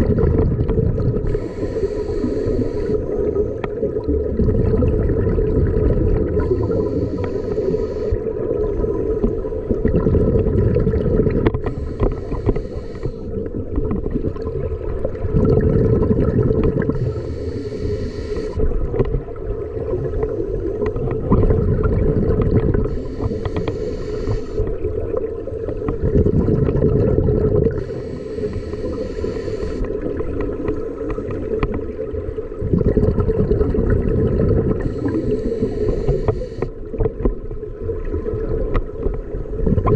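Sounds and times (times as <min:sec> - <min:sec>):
exhaled bubbles underwater: 0:00.0 - 0:39.9
scuba regulator inhalation hiss: 0:01.2 - 0:03.3, 0:06.4 - 0:08.2, 0:11.6 - 0:13.4, 0:16.9 - 0:18.6, 0:22.8 - 0:24.7, 0:27.6 - 0:30.0, 0:34.8 - 0:36.8.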